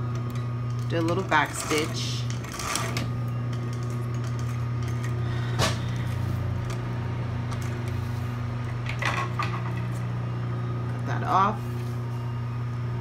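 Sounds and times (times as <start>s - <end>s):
sewing machine motor humming: 0.0s - 10.0s.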